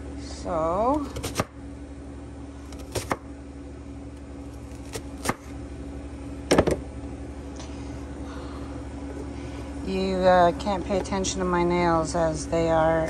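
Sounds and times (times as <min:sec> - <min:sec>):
low hum: 0:00.0 - 0:13.0
knife chopping on cutting board: 0:01.0 - 0:01.5, 0:02.7 - 0:03.2, 0:04.6 - 0:05.5.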